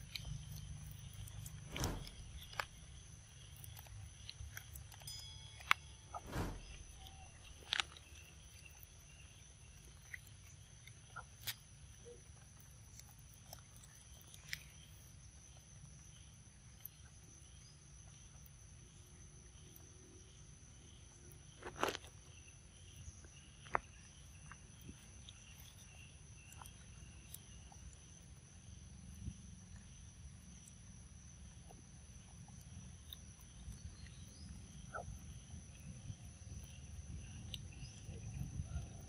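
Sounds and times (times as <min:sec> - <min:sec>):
monkey chewing fruit: 0:00.0 - 0:05.2
low rumble: 0:01.6 - 0:03.0.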